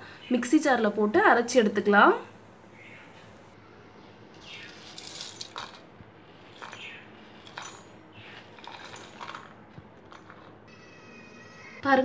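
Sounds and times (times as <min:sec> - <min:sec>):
spices rattling in metal jar: 0:04.5 - 0:10.6.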